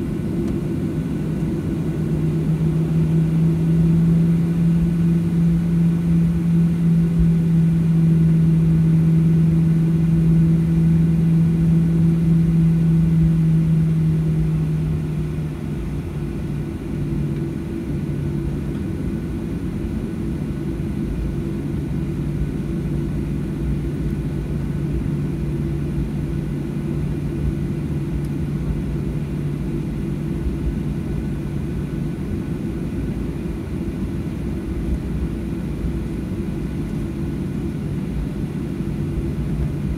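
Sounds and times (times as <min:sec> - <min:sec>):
jet engines droning: 0:00.0 - 0:39.9.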